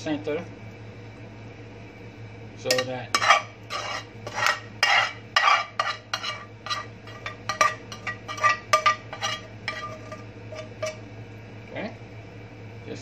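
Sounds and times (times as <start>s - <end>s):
spoon scraping a metal pan: 2.7s - 11.0s.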